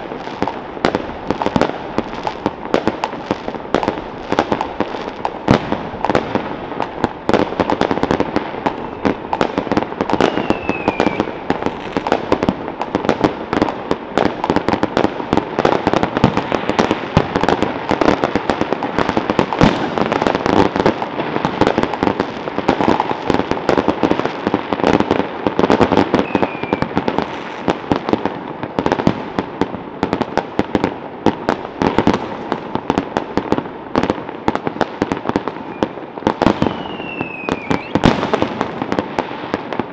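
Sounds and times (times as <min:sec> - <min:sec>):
fireworks crackling and banging: 0:00.0 - 0:39.9
firework falling whistle: 0:08.6 - 0:12.1, 0:26.1 - 0:27.7, 0:35.5 - 0:38.4.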